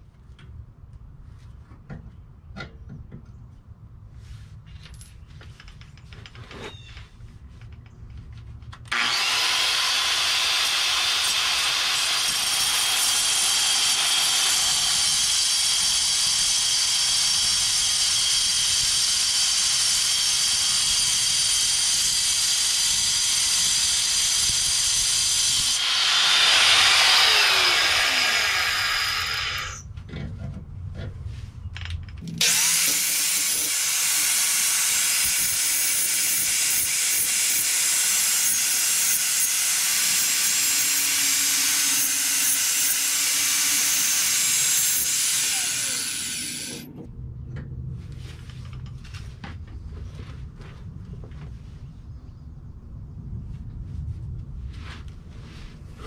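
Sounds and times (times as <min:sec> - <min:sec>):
rotary tool grinding metal: 0:08.9 - 0:29.9, 0:32.4 - 0:47.0.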